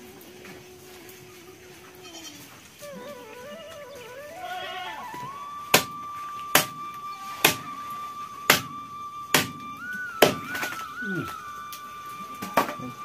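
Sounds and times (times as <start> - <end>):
background music: 2.9 - 13.0.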